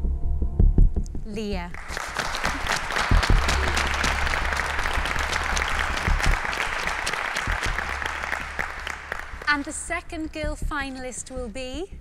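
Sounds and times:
small group clapping: 1.7s - 10.4s.

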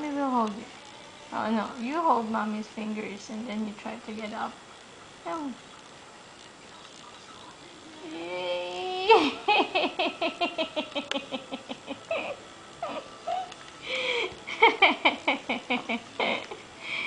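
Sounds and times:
person laughing: 9.0s - 16.6s.

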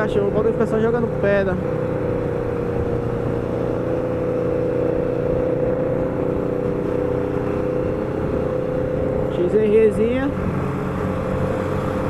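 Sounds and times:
motorcycle engine cruising: 0.0s - 12.0s
wind and road noise: 0.0s - 12.0s.

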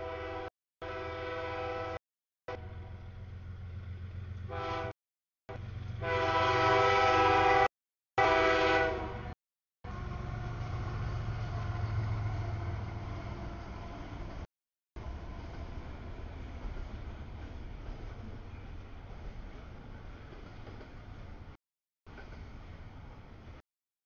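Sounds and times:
locomotive air horn blasts: 0.0s - 2.7s, 4.5s - 9.4s
train rumbling past: 0.0s - 23.6s.

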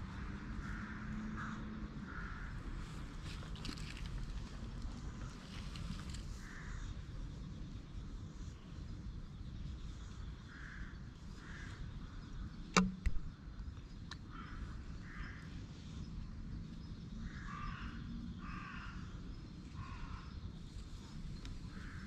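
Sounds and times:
sharp click: 12.7s - 13.3s.

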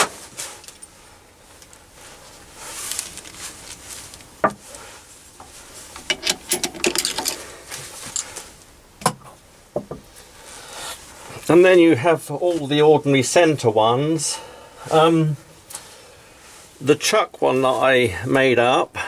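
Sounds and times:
metal clicks and clinks: 6.0s - 7.4s.

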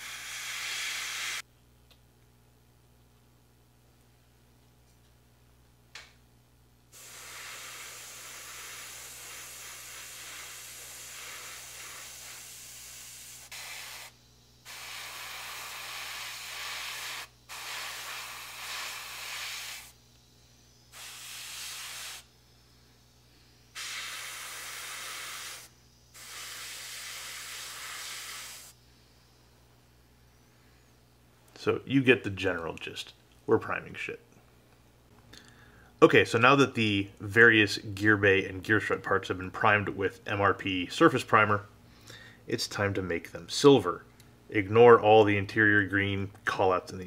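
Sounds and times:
airbrush spraying hiss: 0.0s - 1.4s, 6.9s - 29.4s.

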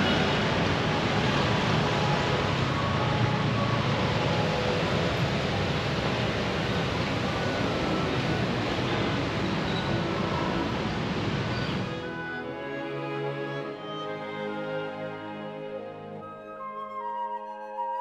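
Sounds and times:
road traffic hum: 0.0s - 16.2s.

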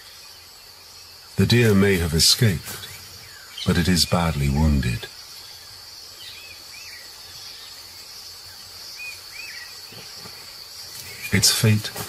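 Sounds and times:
bird chirps: 0.0s - 12.0s
high insect hiss: 0.0s - 12.0s.

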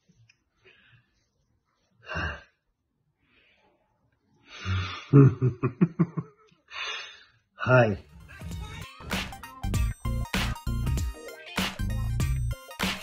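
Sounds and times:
man laughing: 5.1s - 6.5s.

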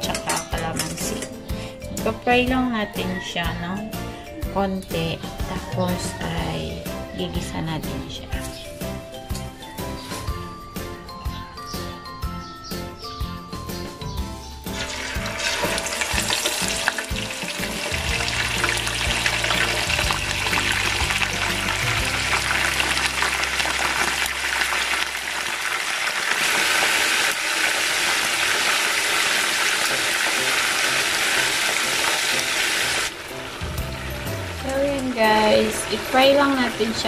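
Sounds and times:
meat sizzling in hot oil: 14.6s - 34.5s.

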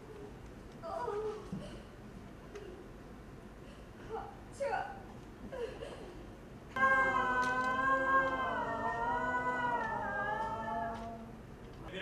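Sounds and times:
woman wailing: 6.8s - 11.2s.

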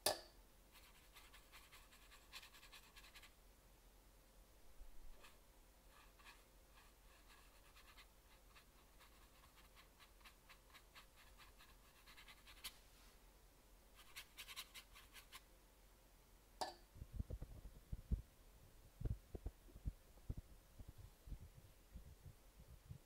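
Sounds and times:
brush scratching on paper: 0.7s - 3.4s, 5.1s - 13.1s, 14.0s - 15.4s.

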